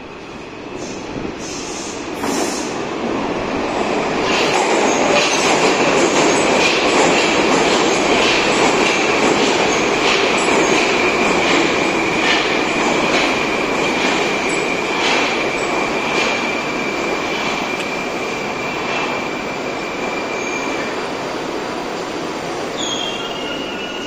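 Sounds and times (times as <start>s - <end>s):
train rumble: 0.0s - 24.0s
high wheel squeal: 22.8s - 24.0s.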